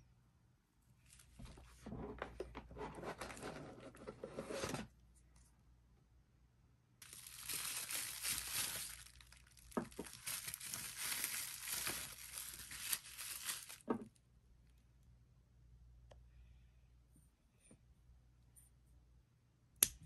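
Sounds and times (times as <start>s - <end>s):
bubble wrap crinkling: 7.0s - 14.1s.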